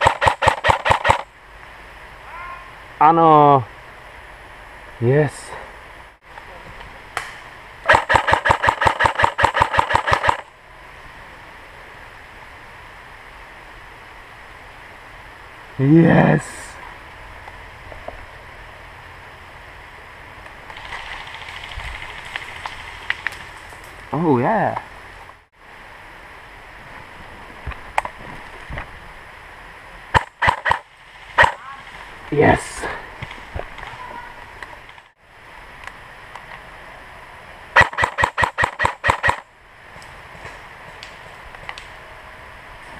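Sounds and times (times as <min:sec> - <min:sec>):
airsoft gun firing: 0:00.0 - 0:01.2, 0:07.9 - 0:10.5, 0:30.2 - 0:30.8, 0:31.4 - 0:31.6, 0:37.8 - 0:39.4
steady outdoor hiss: 0:00.0 - 0:42.9.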